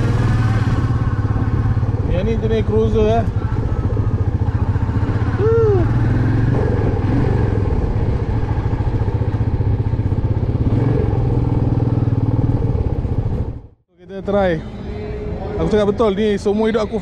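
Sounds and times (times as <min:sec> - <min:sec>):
motorcycle engine running: 0:00.0 - 0:13.8.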